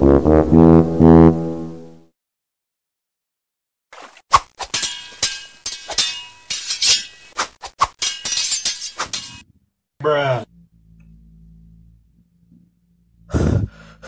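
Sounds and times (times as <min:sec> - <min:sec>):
sharp clinking and crashing impacts: 0:04.4 - 0:09.5.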